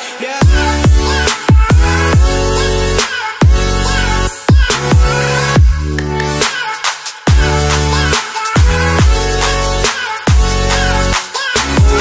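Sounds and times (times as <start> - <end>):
deep punchy kick drums: 0.4 - 2.4, 4.5 - 5.8, 7.3 - 7.6, 8.6 - 9.3.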